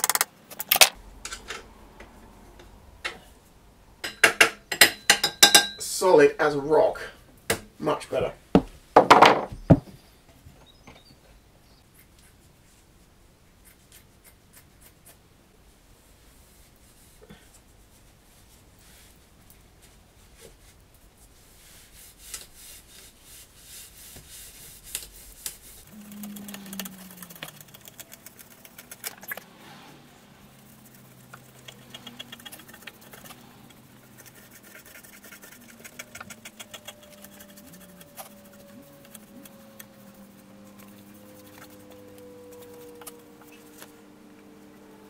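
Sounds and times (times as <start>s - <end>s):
faint low hums: 0.4s - 21.9s, 24.0s - 45.0s
rubbing and scraping on metal: 21.4s - 43.8s.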